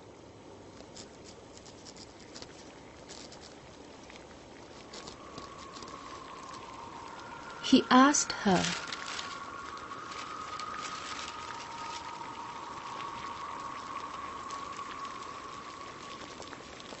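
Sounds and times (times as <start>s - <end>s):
crackling hiss with fine ticks: 0.0s - 17.0s
faint high tone: 5.2s - 16.4s.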